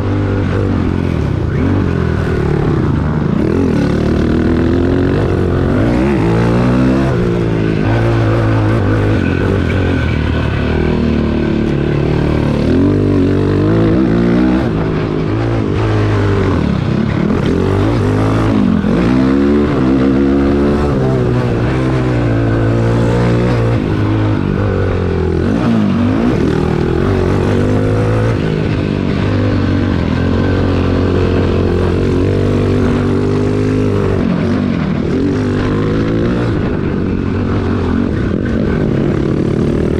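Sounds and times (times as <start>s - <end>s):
quad engine revving: 0.0s - 39.9s.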